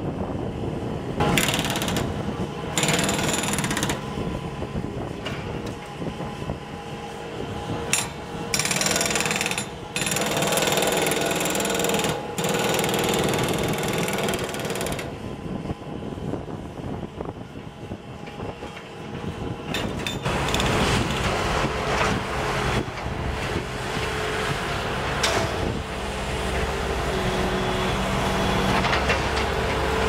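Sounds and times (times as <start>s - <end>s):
diesel engine running: 0.1s - 30.0s
hydraulic breaker hammering concrete: 1.2s - 4.1s, 7.9s - 15.2s.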